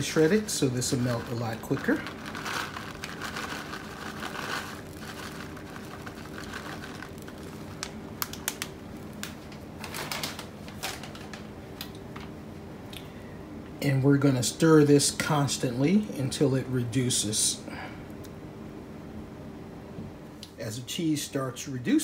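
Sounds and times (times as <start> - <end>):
plastic bag crinkling: 0.0 - 11.5
steady low hum: 0.0 - 22.0.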